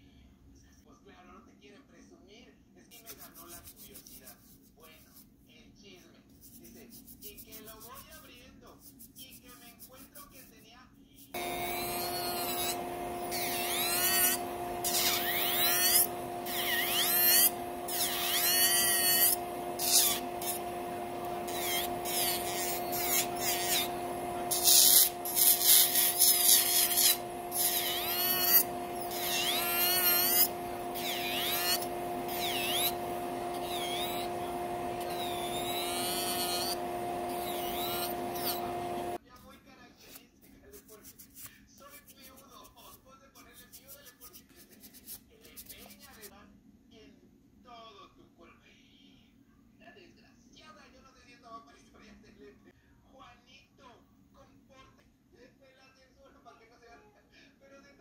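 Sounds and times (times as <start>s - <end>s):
high wavering squeals: 11.4s - 20.6s, 24.6s - 38.7s
nail drill humming: 11.4s - 39.2s.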